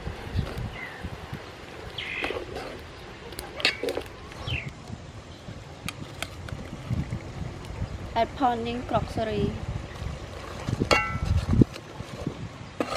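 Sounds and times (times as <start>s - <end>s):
small birds chirping: 0.3s - 1.1s, 1.9s - 3.4s, 4.4s - 5.6s.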